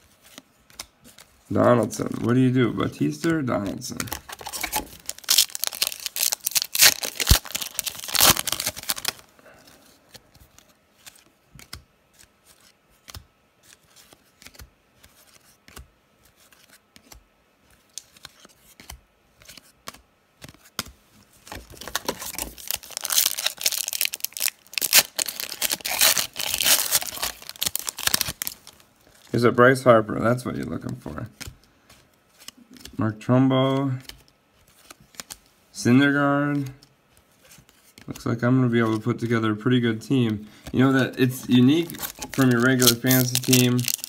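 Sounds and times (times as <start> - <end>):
cards clicking and rustling: 0.2 - 2.4, 3.0 - 29.4, 40.1 - 44.0
wrappers crinkling and tearing: 3.9 - 9.3, 21.6 - 29.3, 41.3 - 44.0.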